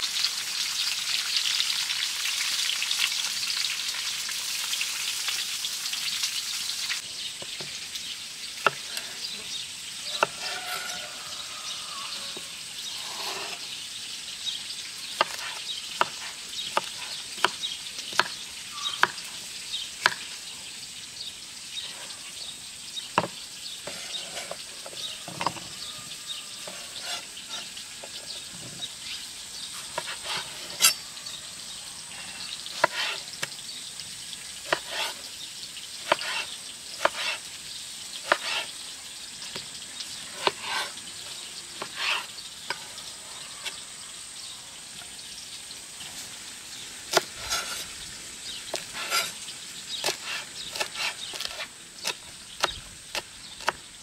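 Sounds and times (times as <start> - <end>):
faint steady hiss: 0.0 - 54.0.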